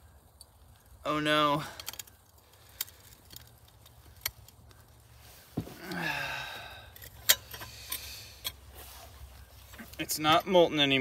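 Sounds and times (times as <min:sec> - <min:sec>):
person groaning: 0:05.8 - 0:06.9.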